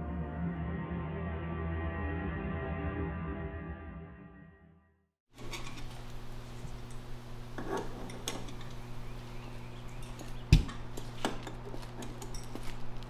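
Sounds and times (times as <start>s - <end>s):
steady low hum: 5.4s - 13.0s
metal clinks and taps: 9.9s - 13.0s.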